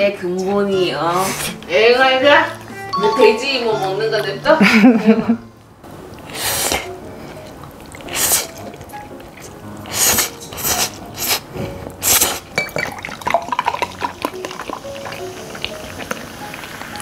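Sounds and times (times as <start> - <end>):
background music: 0.0 - 17.0
noodles slurped: 6.1 - 17.0
soda poured fizzing: 12.0 - 17.0.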